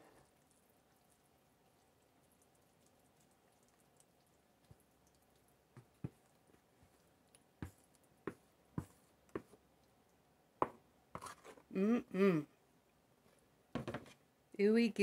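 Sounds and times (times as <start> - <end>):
wet squishing of macaroni: 0.0 - 10.3.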